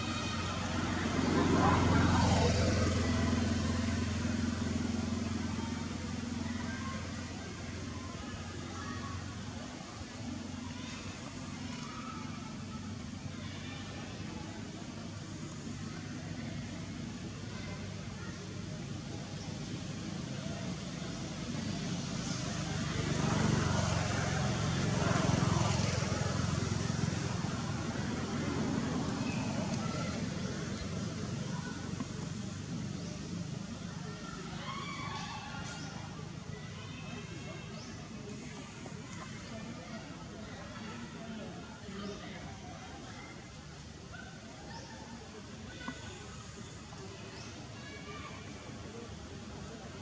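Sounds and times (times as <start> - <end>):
vehicle engine running: 0.0 - 8.7
vehicle engine humming: 0.0 - 34.6.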